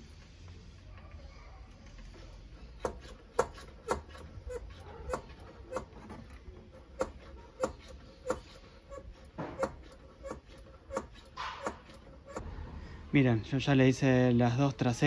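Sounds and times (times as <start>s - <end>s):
hand pump squeaky clicks: 2.3s - 12.4s.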